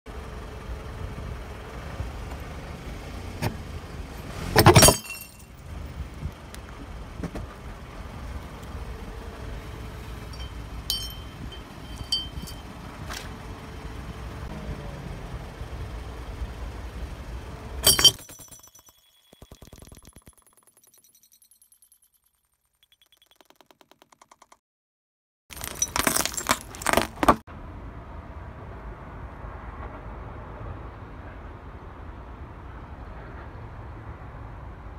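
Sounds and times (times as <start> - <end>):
low engine rumble: 0.1 - 18.1
glass bar shattering: 4.6 - 5.5, 10.4 - 12.6, 17.8 - 23.5, 25.5 - 27.4
glass shards clinking: 4.7 - 5.5, 10.4 - 12.7, 17.8 - 22.2, 25.5 - 27.4.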